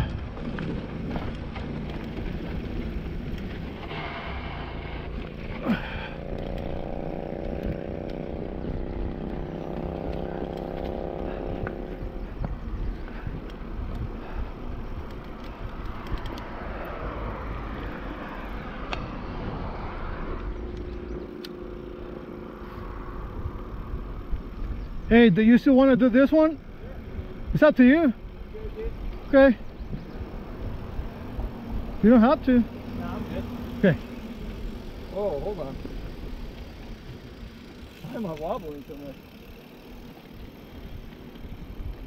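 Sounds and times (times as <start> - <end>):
bike tyres rolling on dirt: 0.0 - 42.0
wind on microphone: 28.2 - 32.0.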